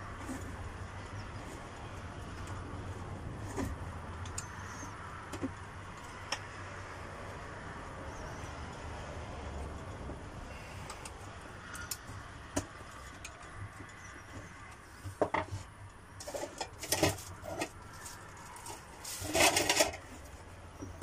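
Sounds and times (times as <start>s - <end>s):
tools rattling: 10.8s - 21.0s.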